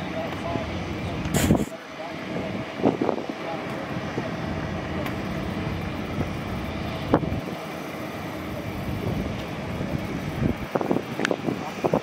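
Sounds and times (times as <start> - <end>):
distant engine rumble: 0.0 - 12.0
wind on microphone: 8.7 - 12.0.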